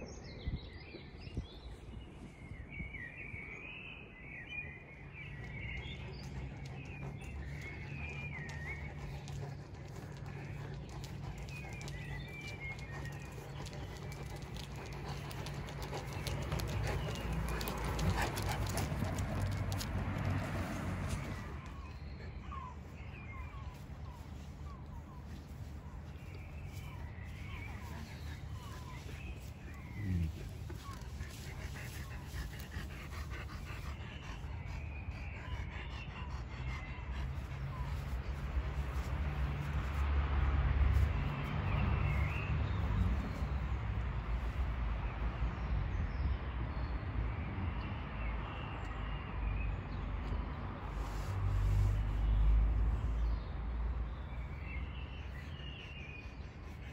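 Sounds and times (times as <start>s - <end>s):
dogs panting: 4.9s - 45.6s, 49.6s - 56.9s
dog claws clicking on asphalt: 8.5s - 21.8s.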